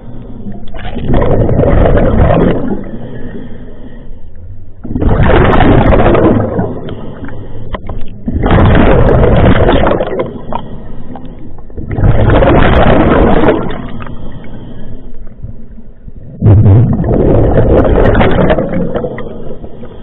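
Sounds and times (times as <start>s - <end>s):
diver's exhaled bubbles rushing: 0.0s - 3.1s, 4.8s - 7.1s, 8.2s - 10.6s, 11.8s - 14.1s, 16.3s - 19.7s.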